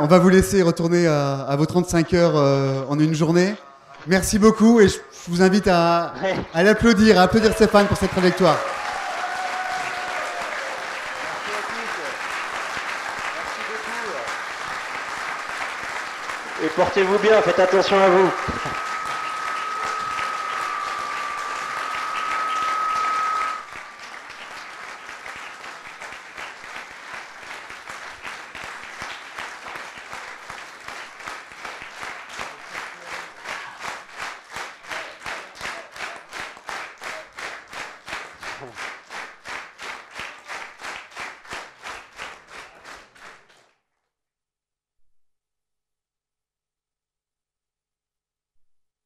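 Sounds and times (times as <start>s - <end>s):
audience applauding: 6.6s - 43.8s
rhythmic clapping in unison: 6.6s - 43.8s
steady high tone: 16.4s - 24.1s.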